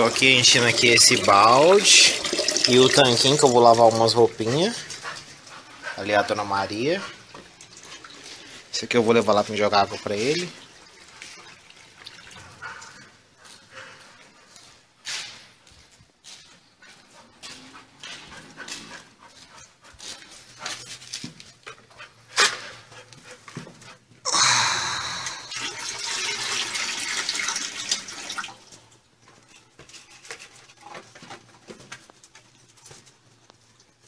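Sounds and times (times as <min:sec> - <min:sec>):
water pouring into bowl: 0:00.0 - 0:04.4, 0:24.3 - 0:28.6.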